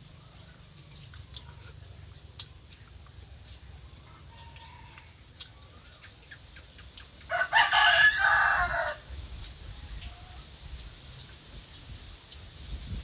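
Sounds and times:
rooster crowing: 4.2s - 5.2s, 7.3s - 9.1s.

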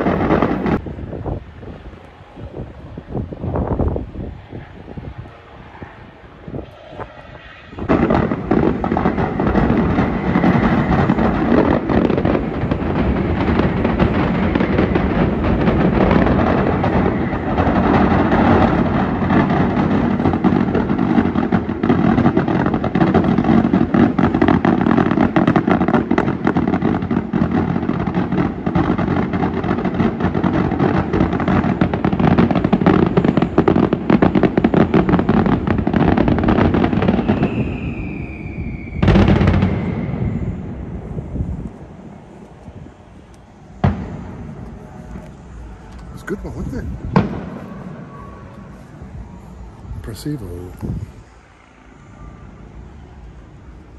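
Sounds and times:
firecracker bangs in rapid succession: 0.0s - 0.8s, 7.7s - 42.2s, 43.8s - 51.3s.

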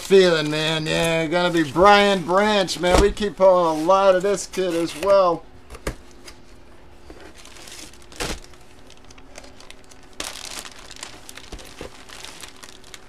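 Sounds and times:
plastic bag crinkling: 7.3s - 13.0s.

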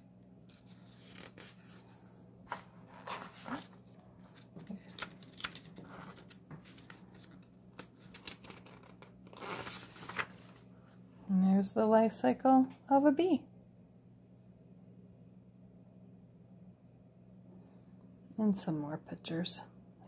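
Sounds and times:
low steady hum: 0.0s - 20.0s
paper pages turning: 0.5s - 10.7s.

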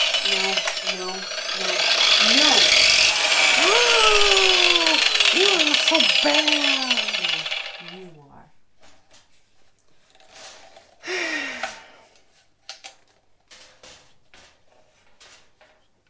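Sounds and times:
motor winding down: 0.0s - 8.2s.

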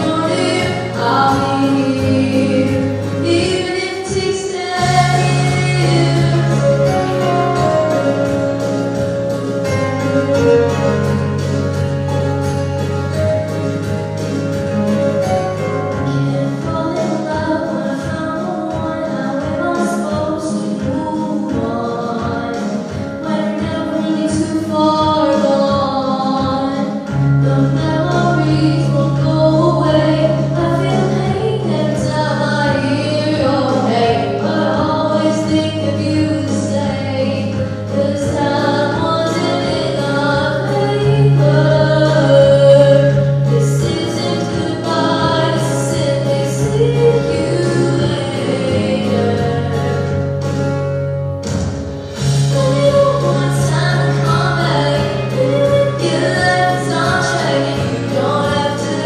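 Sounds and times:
woman singing pop song: 0.0s - 11.2s, 15.2s - 51.1s, 52.0s - 59.0s
recorded backing track: 0.0s - 59.0s
deep bass line: 4.8s - 18.2s, 27.1s - 59.0s.

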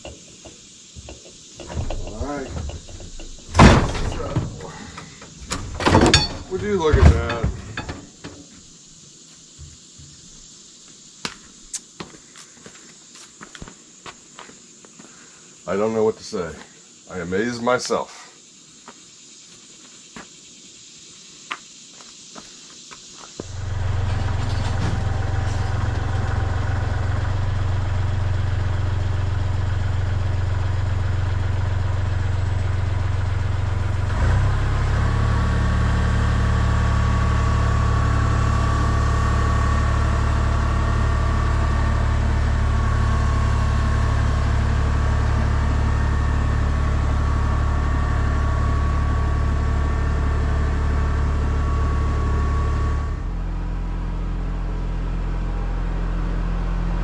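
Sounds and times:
tractor diesel engine running: 1.1s - 8.2s, 23.4s - 57.0s
hydraulic lift whine: 23.4s - 57.0s.

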